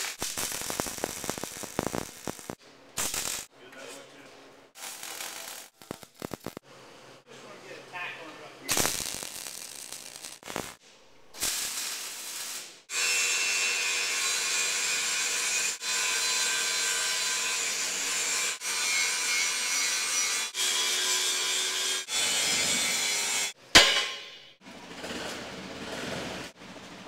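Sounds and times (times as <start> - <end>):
sharp bang: 23.8 - 24.6.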